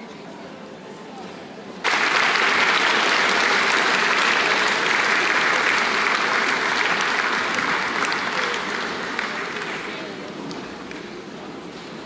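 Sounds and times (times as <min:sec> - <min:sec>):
audience applauding: 0:01.8 - 0:10.3.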